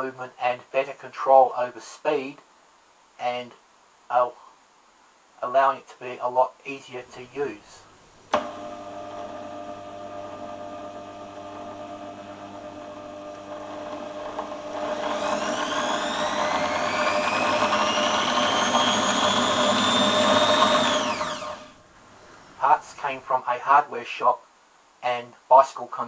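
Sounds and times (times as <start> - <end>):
electric drill motor whining: 8.3 - 21.8.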